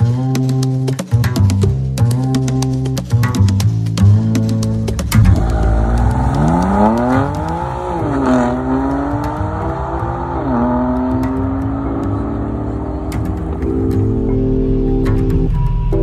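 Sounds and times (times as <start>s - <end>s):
car engine accelerating hard: 5.0s - 15.0s.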